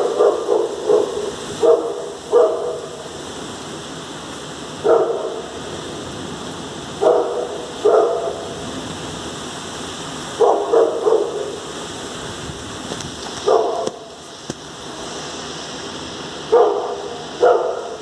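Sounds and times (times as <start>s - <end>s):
dog barking: 0.0s - 3.0s, 4.8s - 5.5s, 7.0s - 8.6s, 10.4s - 11.6s, 13.4s - 14.2s, 16.5s - 18.0s
heavy rain: 0.0s - 18.0s
wind: 0.0s - 18.0s.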